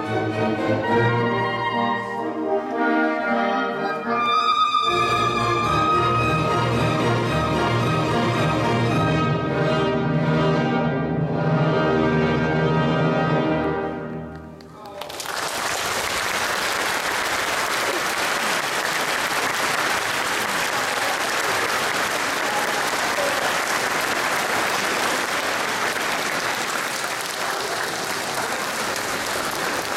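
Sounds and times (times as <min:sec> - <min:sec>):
audience applause: 0:14.6 - 0:29.9.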